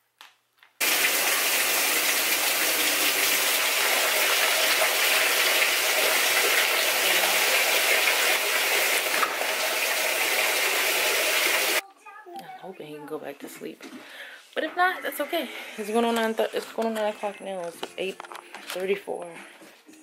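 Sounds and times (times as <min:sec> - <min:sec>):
water gushing into washing machine: 0:00.8 - 0:11.8.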